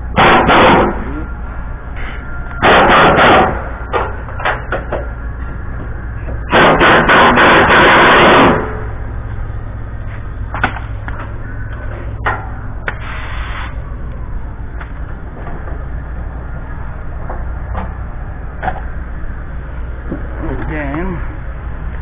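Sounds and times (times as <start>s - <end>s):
impact wrench hammering: 2.6s - 4.9s, 6.5s - 8.7s.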